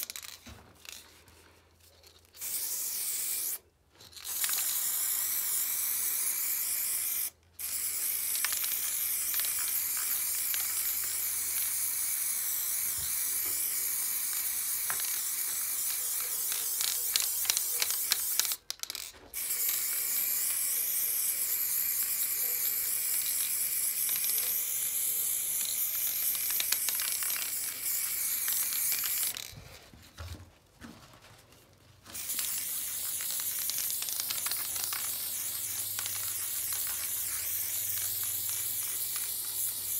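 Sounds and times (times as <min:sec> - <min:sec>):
spray-paint can hissing: 0:02.4 - 0:03.6, 0:04.2 - 0:29.5, 0:32.2 - 0:39.9.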